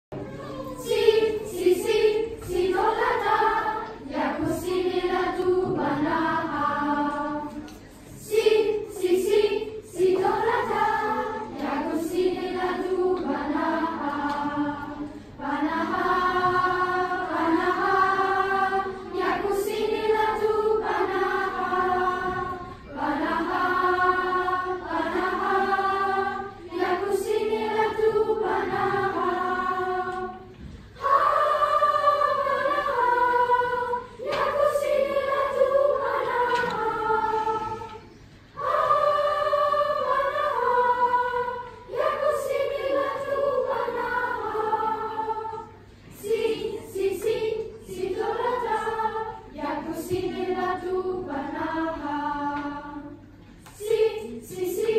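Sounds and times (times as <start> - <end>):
children's choir singing: 0.1 - 54.9.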